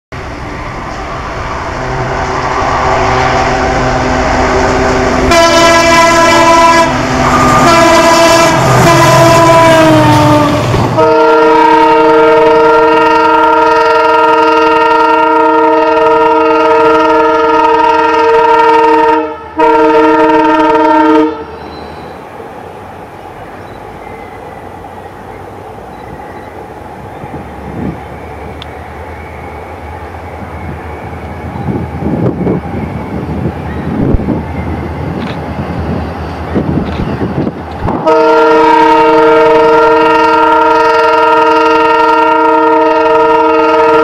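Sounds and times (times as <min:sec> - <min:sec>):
train rumbling past: 0:00.1 - 0:44.0
locomotive air horn: 0:01.6 - 0:21.7, 0:37.9 - 0:44.0.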